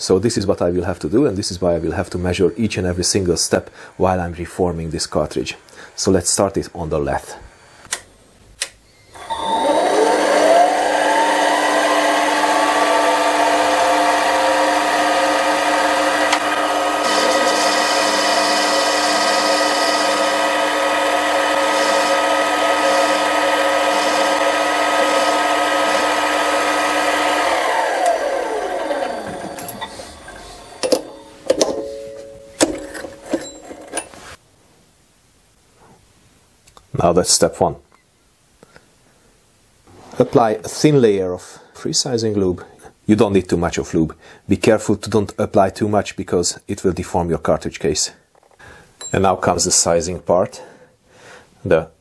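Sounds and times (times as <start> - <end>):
lathe motor whine: 9.1 - 31.8
clicks and knocks: 30.8 - 34.2.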